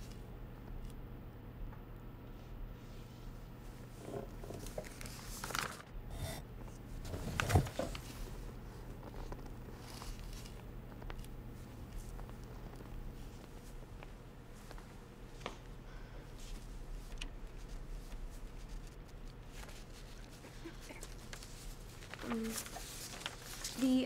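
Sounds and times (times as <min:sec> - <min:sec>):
paper rustling: 0:04.4 - 0:05.9, 0:07.0 - 0:13.8, 0:16.4 - 0:24.0
faint footsteps: 0:10.6 - 0:15.8.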